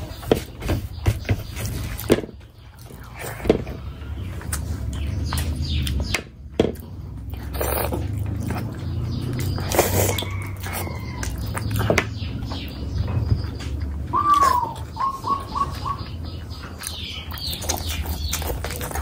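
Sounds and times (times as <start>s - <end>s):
close chewing: 1.4s - 6.1s, 6.7s - 19.0s.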